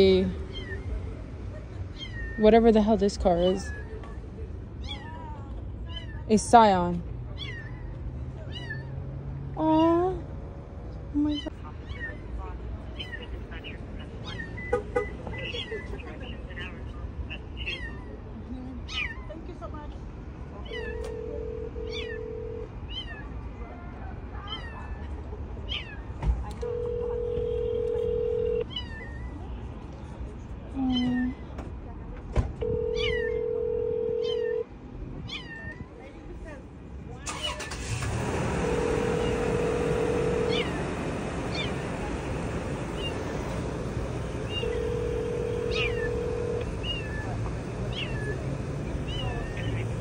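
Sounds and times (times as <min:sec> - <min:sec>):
steady background noise: 0:00.0 - 0:50.0
kitten meowing: 0:17.6 - 0:18.2, 0:18.9 - 0:19.3, 0:33.0 - 0:33.4, 0:35.3 - 0:35.9, 0:40.4 - 0:40.8, 0:45.6 - 0:46.2, 0:47.9 - 0:48.3, 0:49.1 - 0:49.7
phone ringing tone: 0:20.8 - 0:22.7, 0:26.6 - 0:28.7, 0:32.6 - 0:34.6, 0:38.6 - 0:40.8, 0:44.6 - 0:46.7.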